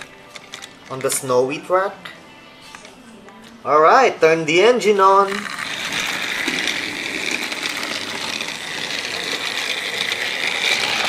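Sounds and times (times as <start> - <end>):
toy train motor whirring: 5.2 - 11.0.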